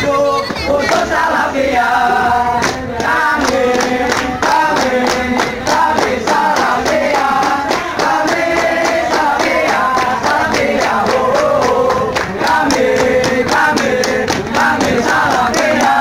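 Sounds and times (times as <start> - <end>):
rhythmic hand clapping: 0.0 - 16.0
young men chanting in unison: 0.0 - 16.0.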